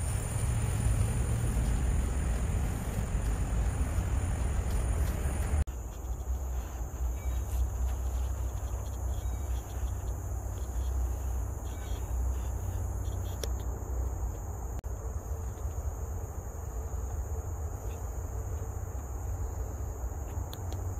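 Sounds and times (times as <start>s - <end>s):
low rumble: 0.0s - 5.7s
shrill insect chorus: 0.0s - 20.9s.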